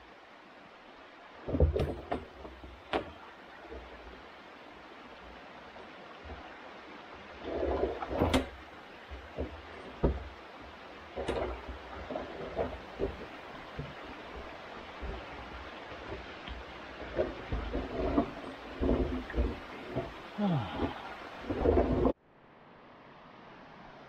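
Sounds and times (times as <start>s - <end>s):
creek running: 0.0s - 22.2s
water tank knocking and scraping: 1.5s - 4.0s, 7.4s - 22.2s.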